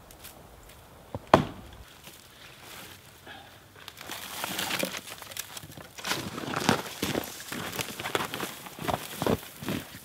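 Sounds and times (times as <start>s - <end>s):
branches crackling and rustling: 0.0s - 10.0s
branch cracking: 3.8s - 10.0s.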